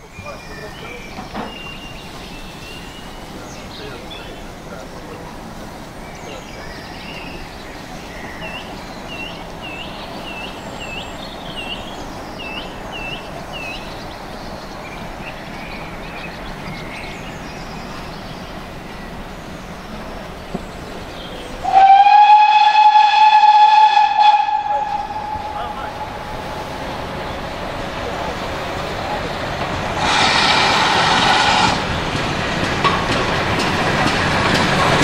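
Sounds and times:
train rumbling: 0:00.0 - 0:35.0
steam locomotive whistle: 0:21.6 - 0:26.4, 0:30.0 - 0:31.8.

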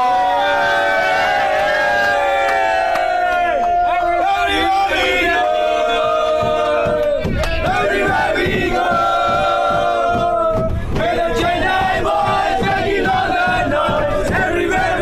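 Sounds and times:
men chanting and singing: 0:04.0 - 0:15.0.

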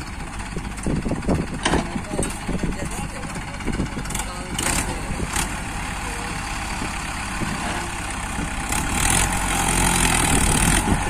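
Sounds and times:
diesel engines under load: 0:00.0 - 0:11.0.

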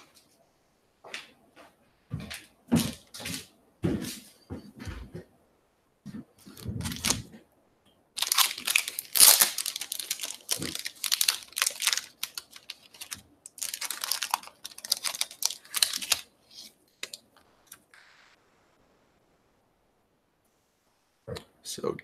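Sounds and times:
plastic crinkling and rustling: 0:06.4 - 0:07.4, 0:08.2 - 0:17.8.

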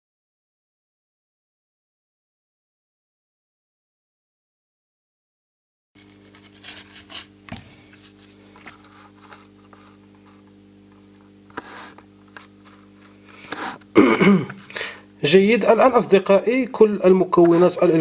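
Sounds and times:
low electrical hum: 0:06.0 - 0:18.0
brush scrubbing circuit board: 0:11.5 - 0:13.8, 0:17.3 - 0:18.0.

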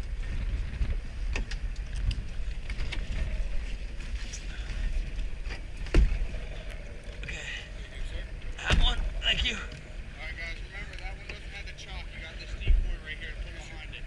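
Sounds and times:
wind rumble on microphone: 0:00.0 - 0:14.0
loud thump: 0:08.6 - 0:09.0.

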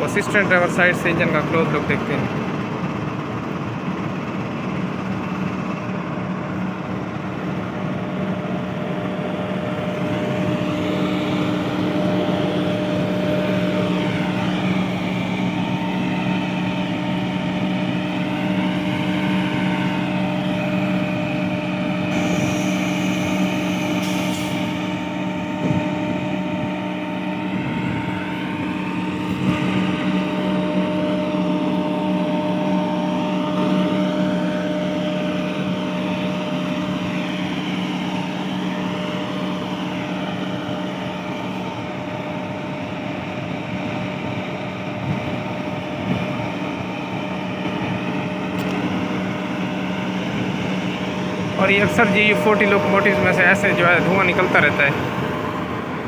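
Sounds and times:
locomotive engine idling: 0:00.0 - 0:56.0.

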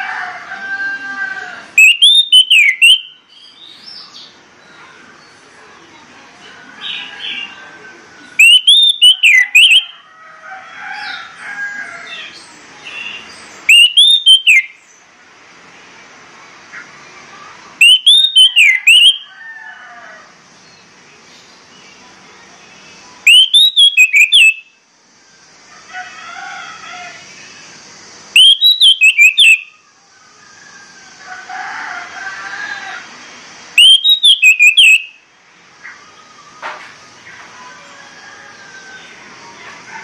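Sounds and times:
thrush whistled song: 0:01.8 - 0:04.0, 0:08.2 - 0:10.0, 0:13.2 - 0:14.8, 0:17.8 - 0:19.3, 0:23.2 - 0:24.8, 0:28.3 - 0:29.8, 0:33.7 - 0:35.2
faint bird twittering: 0:01.8 - 0:05.9, 0:06.8 - 0:10.0, 0:11.8 - 0:15.1, 0:16.8 - 0:19.3, 0:20.6 - 0:25.4, 0:27.4 - 0:30.4, 0:33.8 - 0:35.2.

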